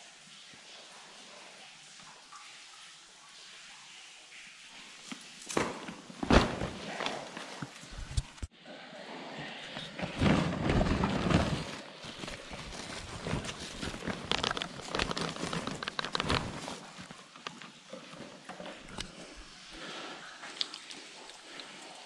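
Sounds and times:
fabric backpack rustling: 5.6s - 8.4s, 9.9s - 18.8s.

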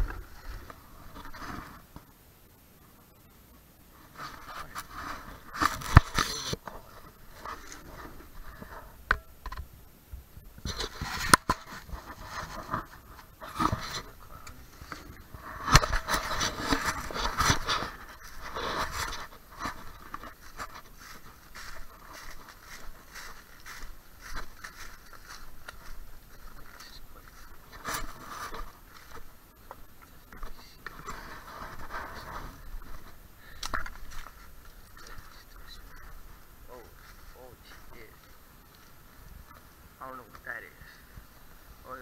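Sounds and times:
footsteps on dry leaves: 11.6s - 30.2s, 30.8s - 39.4s.

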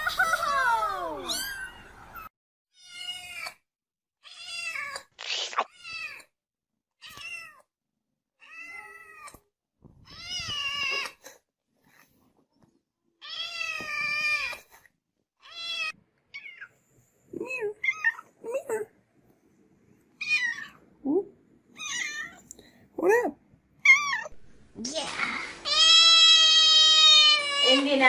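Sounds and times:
kitten meowing: 1.3s - 1.8s, 25.7s - 27.8s.

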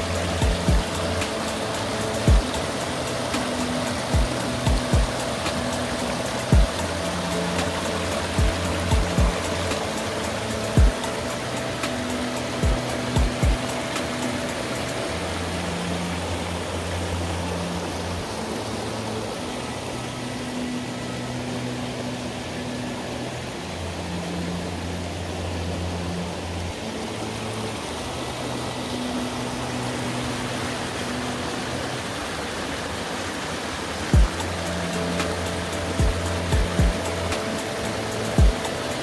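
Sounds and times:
stream flowing: 0.0s - 39.0s.

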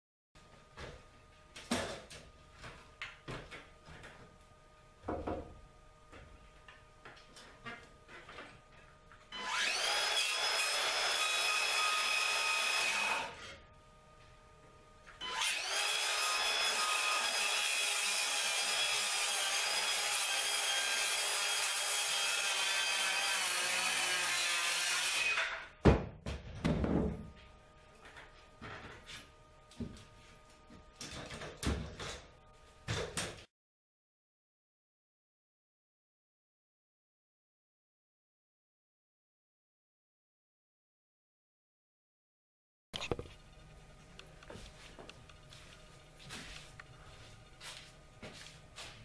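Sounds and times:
circular saw cutting wood: 9.3s - 13.6s, 15.2s - 25.7s.

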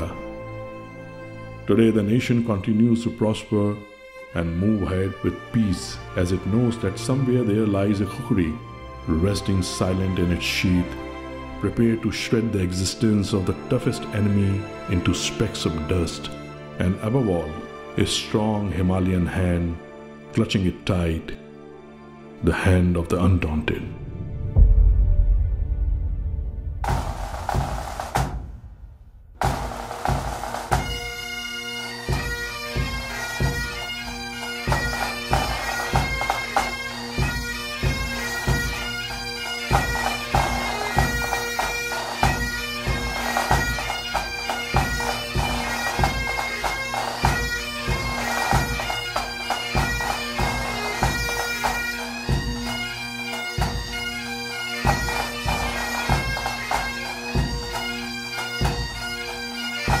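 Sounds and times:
bagpipe melody with drone: 0.0s - 23.5s, 30.1s - 60.0s
regular drumbeat: 24.4s - 60.0s.

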